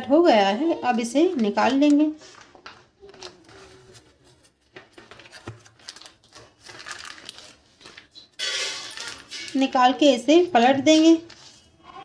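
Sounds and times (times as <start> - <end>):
paper crinkling and rustling: 0.8 - 9.5, 11.0 - 11.9.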